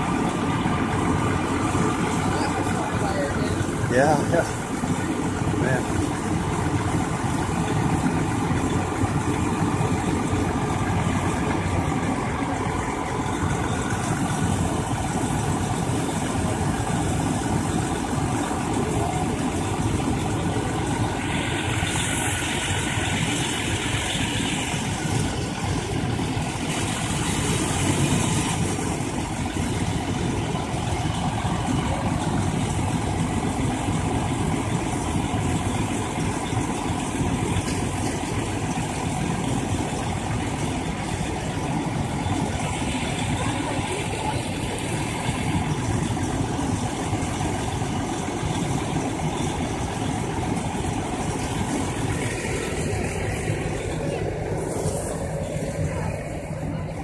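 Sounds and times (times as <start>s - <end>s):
fire engine engine droning: 0.0s - 57.0s.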